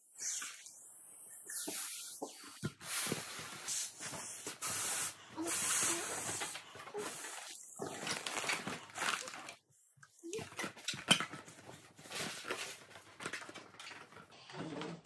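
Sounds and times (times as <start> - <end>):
air hissing out of balloons: 0.2 - 7.6
foil crinkling: 5.8 - 9.6, 11.3 - 14.1.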